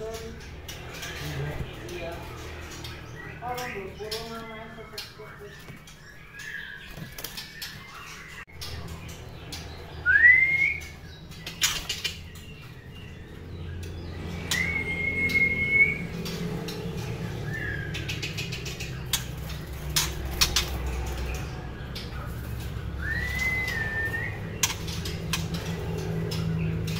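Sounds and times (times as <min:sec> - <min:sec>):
clicks of birds hopping: 0:00.0 - 0:26.9
bird whistled notes: 0:10.0 - 0:11.0, 0:14.4 - 0:16.2, 0:23.0 - 0:24.7.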